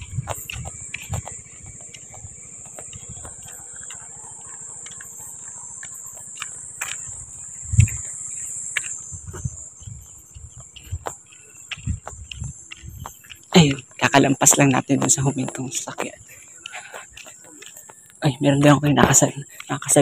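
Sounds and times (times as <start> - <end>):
footstep thuds: 0.0 - 13.7
crickets chirping: 0.0 - 20.0.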